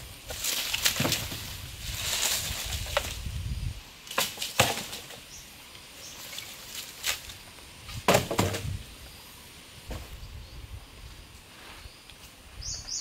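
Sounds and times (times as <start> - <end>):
wooden poles knocking: 4.1 - 5.2, 8.0 - 8.8.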